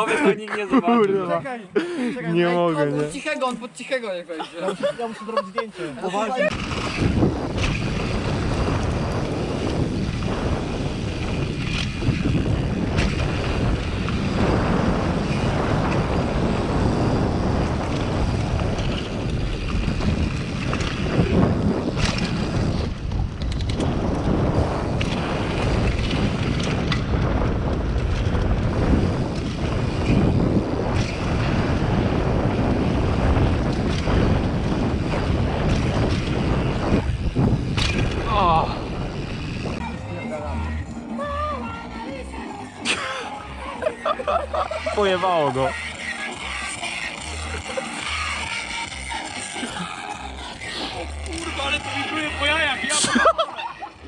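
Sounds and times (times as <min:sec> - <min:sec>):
wind buffeting the microphone: 0:06.4 - 0:42.5
tyres rumbling on dirt: 0:06.4 - 0:53.7.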